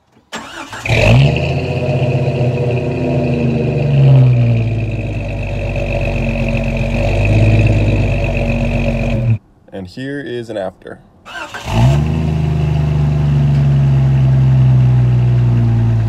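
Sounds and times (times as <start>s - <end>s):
engine idling exhaust: 0.9s - 9.4s, 12.0s - 16.0s.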